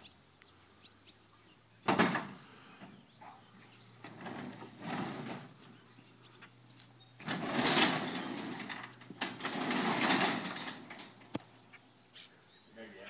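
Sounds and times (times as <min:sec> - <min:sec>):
garage door rattling: 0:01.9 - 0:02.4, 0:03.9 - 0:05.6, 0:07.2 - 0:11.4
loud bang on metal door: 0:01.9 - 0:02.4.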